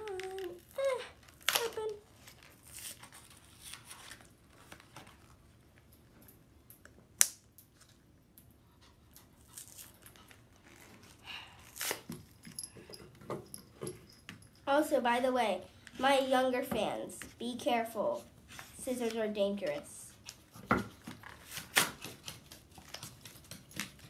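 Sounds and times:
packaging rustling and tearing: 0:00.0 - 0:05.6.

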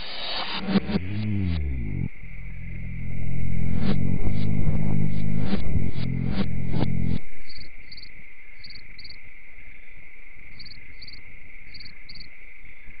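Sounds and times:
music: 0:00.0 - 0:07.2
crickets chirping: 0:00.1 - 0:03.8, 0:06.7 - 0:13.0
high-pitched insect whine: 0:06.0 - 0:13.0.

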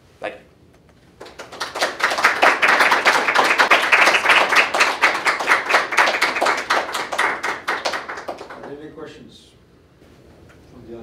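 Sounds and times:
audience applauding: 0:01.2 - 0:08.8.

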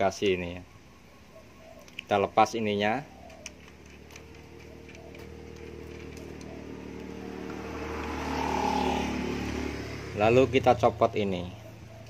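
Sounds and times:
vehicle engine running: 0:03.4 - 0:12.0.

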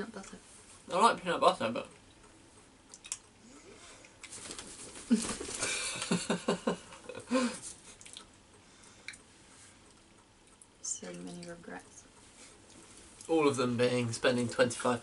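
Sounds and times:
breathy laughter: 0:05.1 - 0:07.7.

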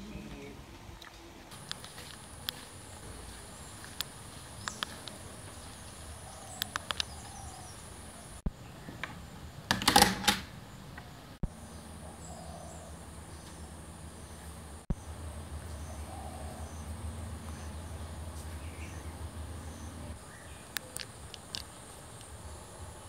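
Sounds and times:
high insect whine: 0:01.6 - 0:08.5
sharp clicks: 0:03.9 - 0:05.2, 0:06.6 - 0:07.2, 0:20.7 - 0:22.4.

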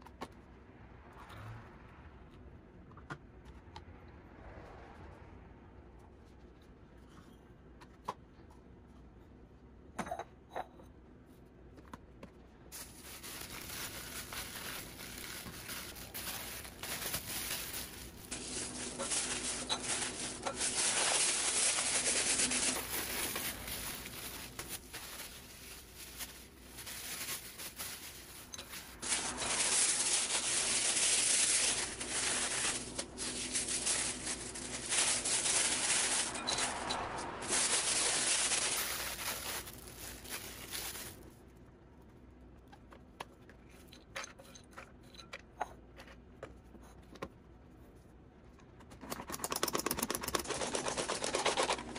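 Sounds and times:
plastic bags rustling: 0:12.7 - 0:41.3, 0:50.4 - 0:51.9
nuts rattling into glass bowl: 0:28.4 - 0:41.0.

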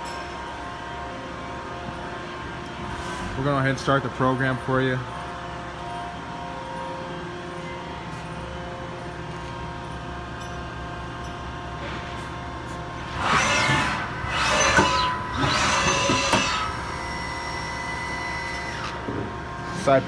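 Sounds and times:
machine hum: 0:00.0 - 0:20.0
machine axes rushing: 0:13.1 - 0:16.9.

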